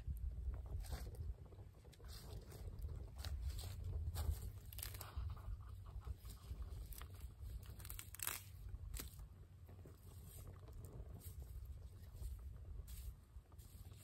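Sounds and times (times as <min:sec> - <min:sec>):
low rumble: 0:00.0 - 0:14.0
pine needles snapping: 0:06.8 - 0:09.2.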